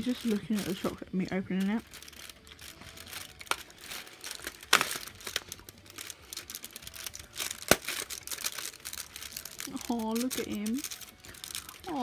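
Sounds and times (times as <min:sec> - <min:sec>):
cardboard crinkling and crackling: 0:00.0 - 0:12.0
sharp cardboard cracks: 0:04.3 - 0:05.5, 0:07.4 - 0:08.8.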